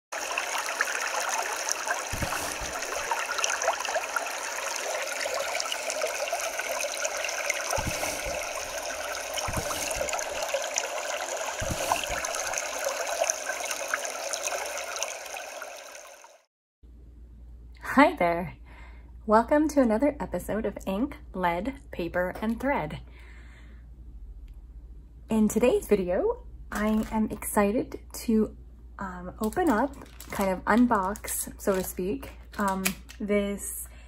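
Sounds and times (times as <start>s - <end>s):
creek babbling over stones: 0.1s - 16.4s.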